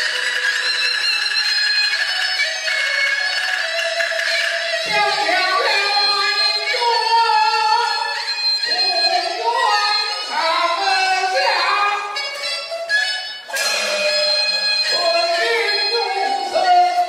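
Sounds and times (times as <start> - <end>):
instrumental accompaniment: 0.0 - 17.0
opera singing: 4.9 - 12.2.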